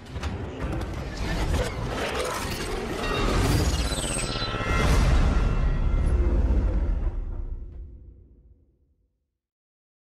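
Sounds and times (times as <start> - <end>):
cinematic music: 0.0 - 8.9.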